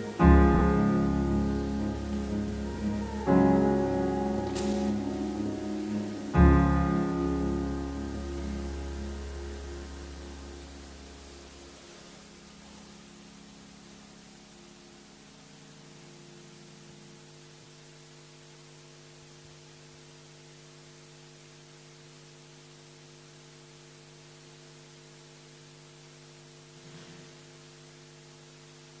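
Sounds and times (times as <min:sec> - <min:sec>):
hiss: 0:00.0 - 0:13.2
faint hum of low tones: 0:00.0 - 0:29.0.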